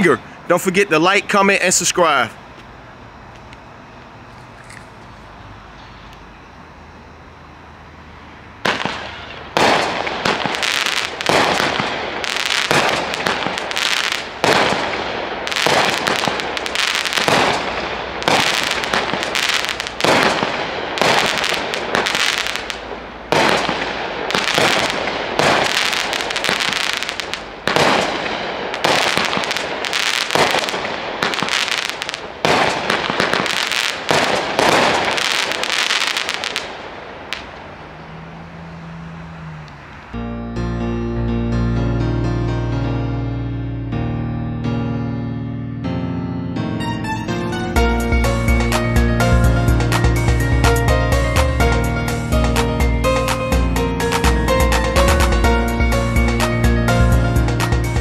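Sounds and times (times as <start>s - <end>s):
firework sharp reports: 0.0s - 2.4s, 8.5s - 38.1s
firework crackling pops: 8.6s - 37.7s.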